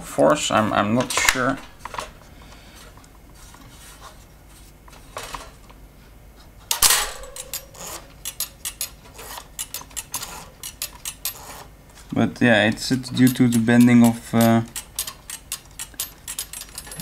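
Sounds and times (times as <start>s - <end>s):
sharp metal clack: 6.7s - 11.4s, 13.1s - 17.0s.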